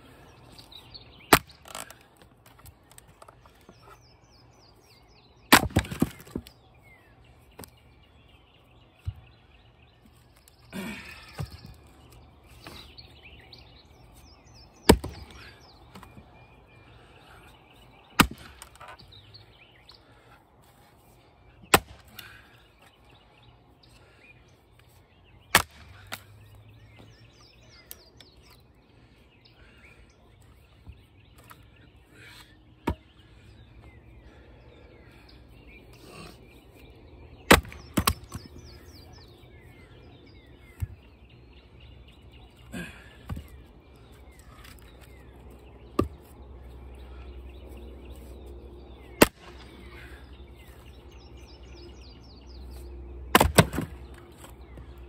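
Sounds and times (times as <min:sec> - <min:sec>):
small birds chirping: 0:00.0 - 0:55.0
axe chopping wood: 0:01.3 - 0:01.8, 0:05.5 - 0:06.4, 0:14.8 - 0:15.4, 0:18.2 - 0:19.0, 0:21.7 - 0:22.1, 0:25.5 - 0:26.2, 0:32.8 - 0:33.0, 0:37.5 - 0:38.6, 0:45.9 - 0:46.2, 0:49.2 - 0:49.5, 0:53.3 - 0:54.2.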